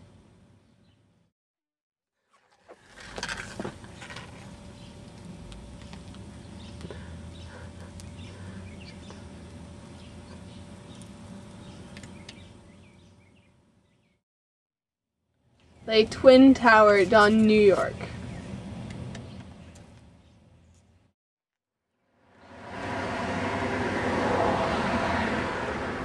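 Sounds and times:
low steady rumble: 0:02.9 - 0:13.9
small birds chirping: 0:03.9 - 0:05.2, 0:05.8 - 0:14.2, 0:17.5 - 0:21.1.

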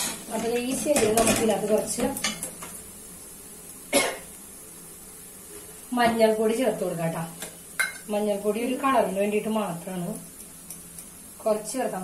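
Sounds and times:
metal spoon scraping a pot: 0:00.0 - 0:01.0.

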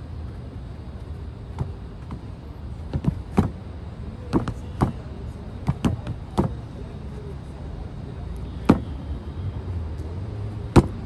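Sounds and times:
low background hum: 0:00.0 - 0:11.0
punches hitting striking post: 0:02.9 - 0:03.6, 0:10.8 - 0:11.0.

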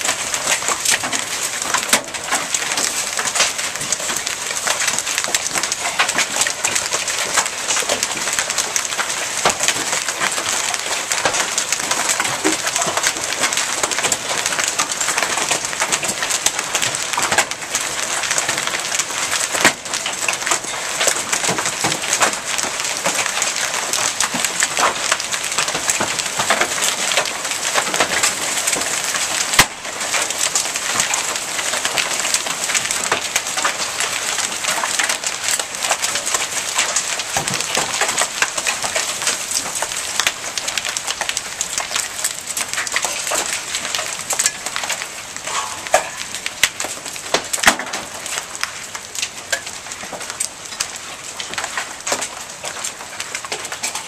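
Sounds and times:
hailstones crackling: 0:00.0 - 0:54.0.

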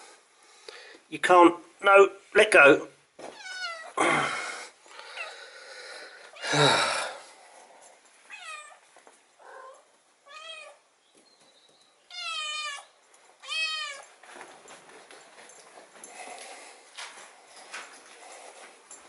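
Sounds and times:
cats meowing: 0:03.3 - 0:04.0, 0:05.0 - 0:06.9, 0:08.3 - 0:08.8, 0:09.4 - 0:10.8, 0:12.1 - 0:14.2.

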